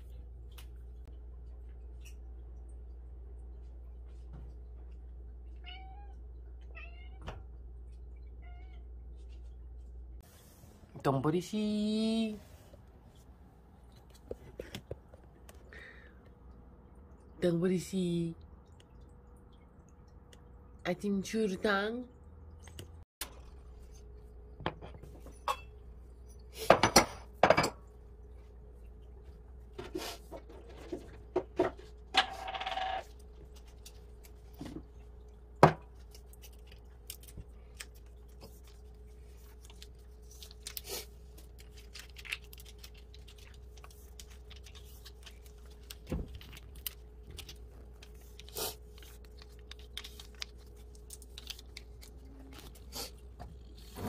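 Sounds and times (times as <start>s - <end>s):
faint steady hum: 0.0s - 54.0s
ceramic bowls clinking: 24.7s - 27.9s.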